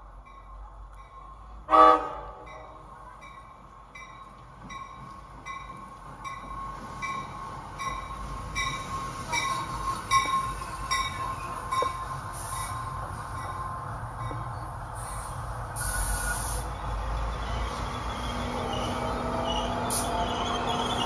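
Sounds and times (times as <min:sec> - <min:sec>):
train rumbling: 0:00.0 - 0:21.0
high squeal: 0:14.5 - 0:21.0.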